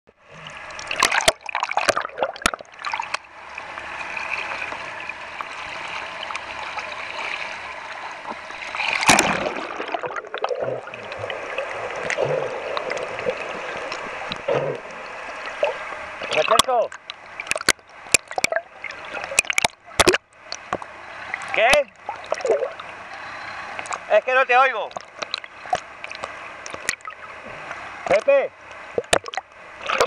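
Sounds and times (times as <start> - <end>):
water rushing and gurgling: 0.2 - 30.0
knocks and splashes: 0.8 - 3.2, 8.2 - 14.9, 15.6 - 22.9, 24.9 - 28.3, 28.9 - 30.0.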